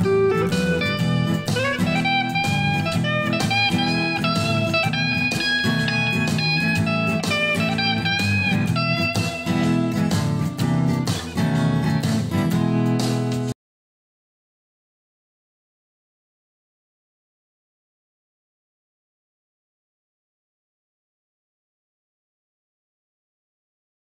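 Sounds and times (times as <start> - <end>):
blues band backing: 0.0 - 13.5
slide guitar lead lines: 0.0 - 13.5.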